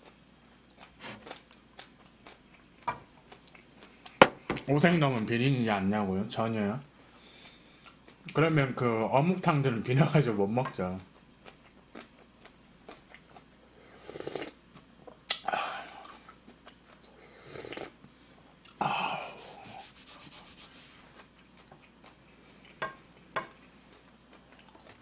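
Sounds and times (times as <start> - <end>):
person blowing and slurping: 14.0 - 14.6, 17.4 - 18.0, 18.8 - 20.7.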